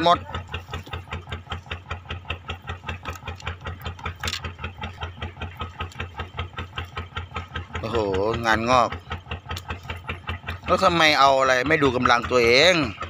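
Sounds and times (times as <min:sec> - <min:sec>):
boat engine idling: 0:00.0 - 0:13.0.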